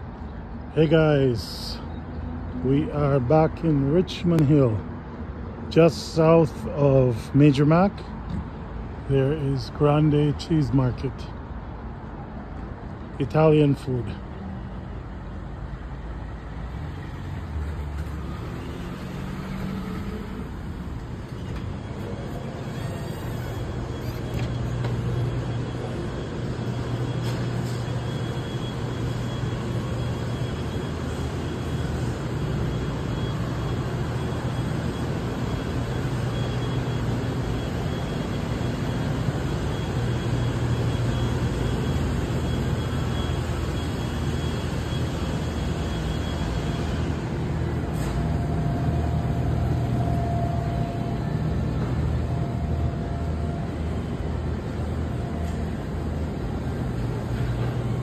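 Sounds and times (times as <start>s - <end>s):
refrigerated cases humming: 17.3s - 58.0s.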